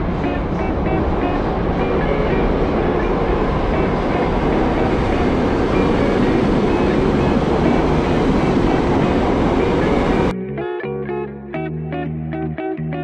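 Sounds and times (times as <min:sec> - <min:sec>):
subway train rail noise: 0:00.0 - 0:10.3.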